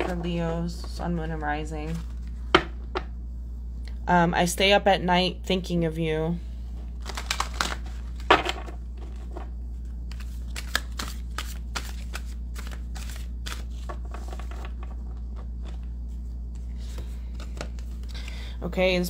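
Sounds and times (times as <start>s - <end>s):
cards being shuffled: 0.0s - 2.7s, 6.9s - 18.3s
low hum: 0.0s - 19.0s.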